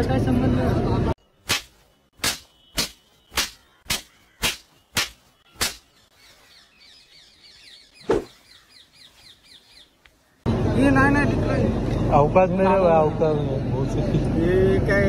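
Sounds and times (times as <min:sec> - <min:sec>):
birds chirping: 0:01.2 - 0:10.8
sharp cracks: 0:01.4 - 0:05.9.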